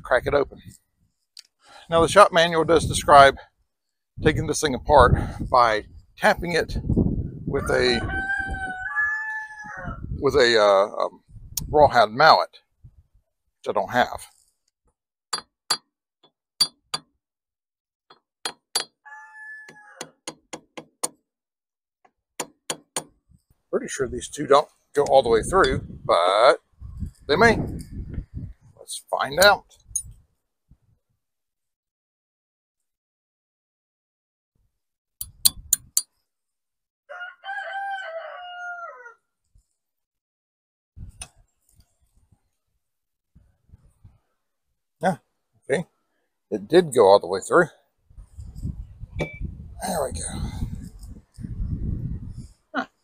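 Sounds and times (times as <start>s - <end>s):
rooster crowing: 7.9s - 10.1s, 19.0s - 20.2s, 37.1s - 39.2s
metal tool tapping metal housing: 16.6s - 17.1s, 18.1s - 19.0s
sharp knocks: 22.4s - 23.2s.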